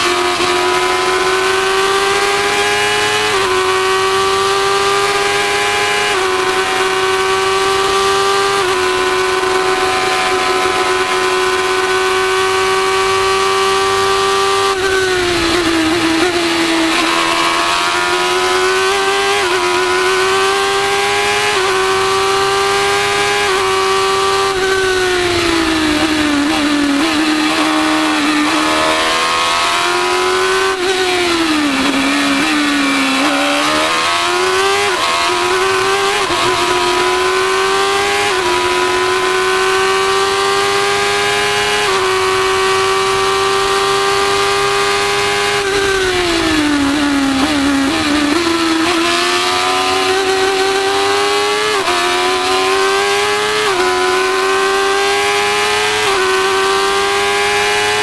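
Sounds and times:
race car engine revving and shifting: 0.0 - 58.0.

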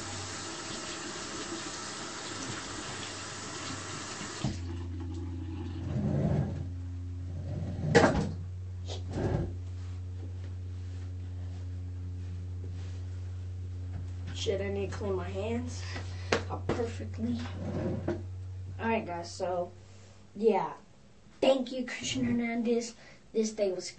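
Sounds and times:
sink tap running: 0.0 - 5.8.

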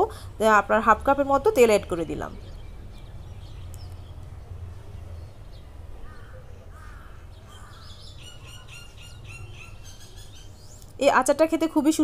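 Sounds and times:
bird calls and chirps: 1.7 - 11.0.

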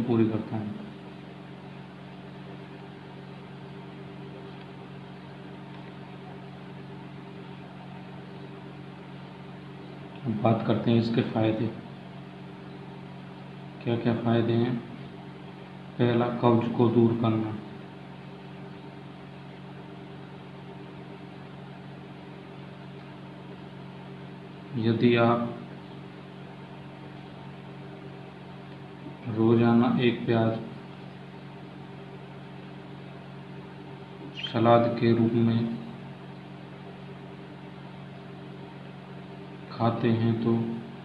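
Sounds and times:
constant hiss: 0.0 - 41.0
steady low hum: 0.0 - 41.0.

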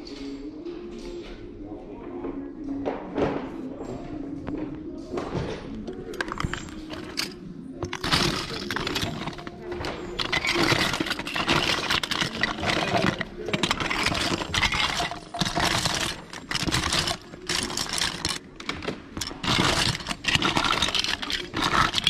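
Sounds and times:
plastic toys clattering: 5.9 - 22.0.

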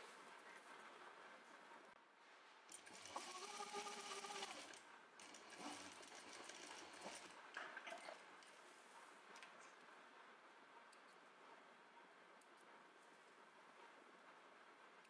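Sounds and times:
sewing machine whine: 2.7 - 8.3.

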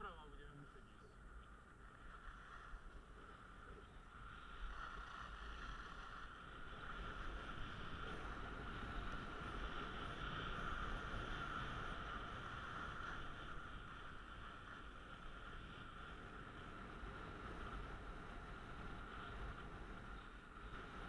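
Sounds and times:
wind rumbling on microphone: 0.0 - 21.0
skis sliding over snow: 0.4 - 21.0.

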